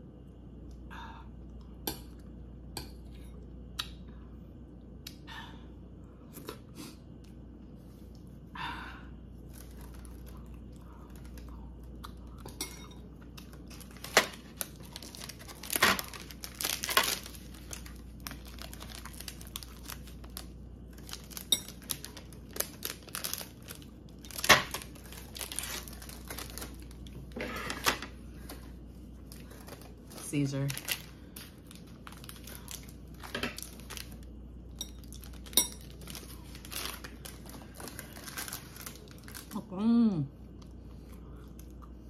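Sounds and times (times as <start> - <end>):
wrapper crinkling and ripping: 9.4 - 11.5, 13.4 - 39.7.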